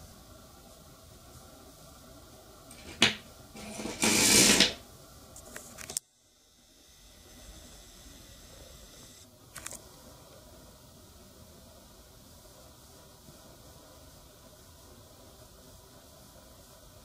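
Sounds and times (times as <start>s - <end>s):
magnets rattling over wire coil: 2.7s - 4.8s
small clicks: 9.6s - 9.9s.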